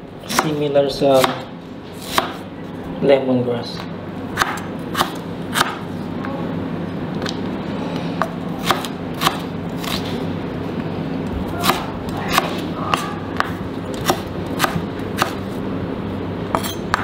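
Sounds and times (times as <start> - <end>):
knife chopping on wooden board: 1.2 - 2.4, 4.4 - 5.8, 8.6 - 10.0, 11.6 - 15.4.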